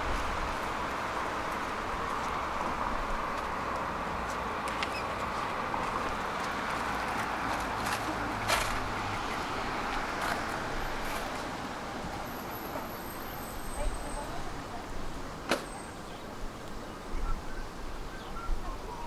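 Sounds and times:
tram wheels rumbling on rails: 0:00.0 - 0:15.7.

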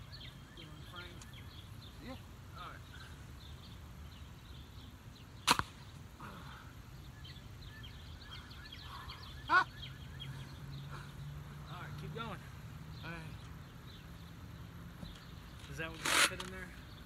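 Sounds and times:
birds chirping faintly: 0:00.0 - 0:17.0
tennis ball launcher crack: 0:05.4 - 0:06.0
man crying out: 0:09.5 - 0:09.8.

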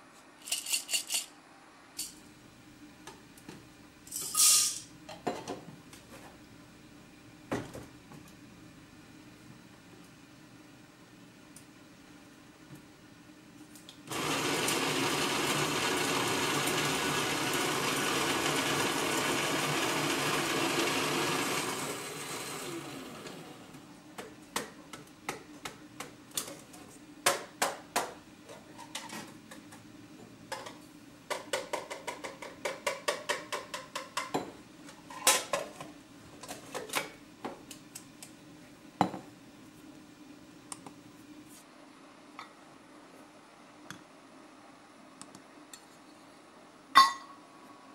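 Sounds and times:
electric coffee grinder running: 0:14.1 - 0:23.8
kitchenware taps and clinks: 0:47.0 - 0:47.4.

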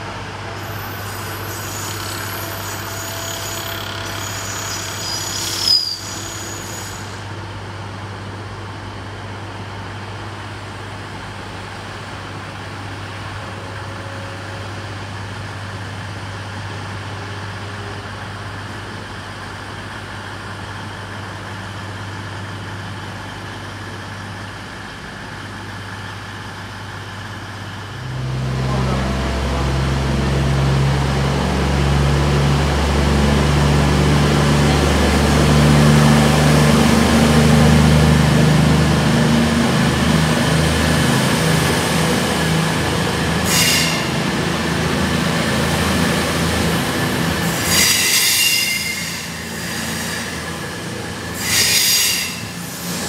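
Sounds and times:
train diesel engines humming: 0:00.0 - 0:53.0
train wheels squealing: 0:00.6 - 0:07.3, 0:43.4 - 0:44.2, 0:47.2 - 0:53.0.

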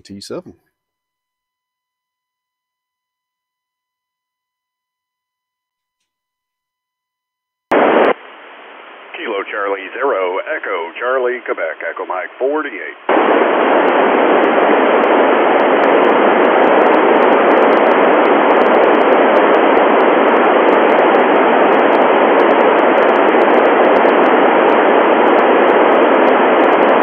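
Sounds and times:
radio receiver hiss: 0:07.7 - 0:27.0.

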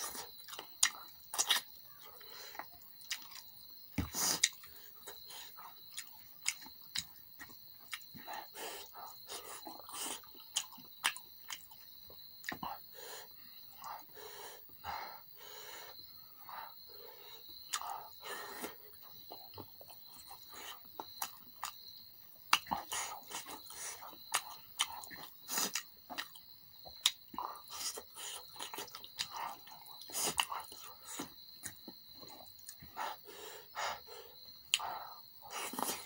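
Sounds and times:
open-mouthed chewing: 0:00.0 - 0:36.0
lip and tongue clicks: 0:33.9 - 0:36.0.

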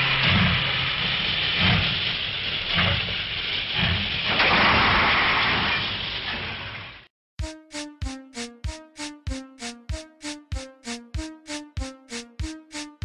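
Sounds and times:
heavy locomotive chuffs: 0:00.0 - 0:04.8
steam hissing: 0:00.0 - 0:07.0.

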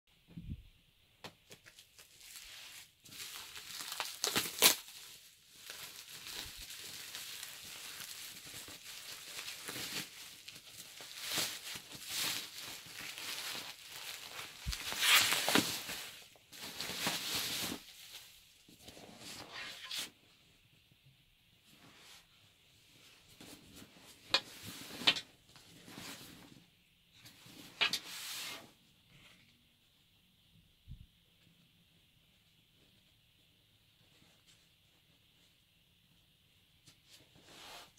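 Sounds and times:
bubble wrap crinkling: 0:01.4 - 0:18.6
fabric rustling and scraping: 0:02.0 - 0:20.2, 0:21.6 - 0:29.4, 0:37.0 - 0:37.9.

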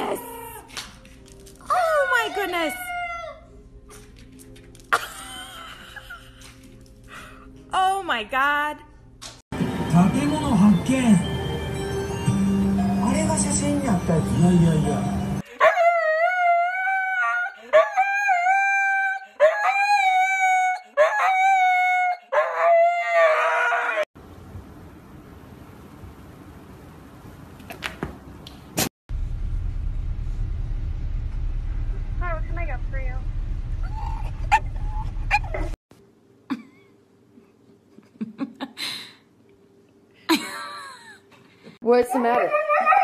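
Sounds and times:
dog howling: 0:01.7 - 0:03.5, 0:15.6 - 0:24.1, 0:42.2 - 0:43.0
car rumbling: 0:29.1 - 0:35.8.

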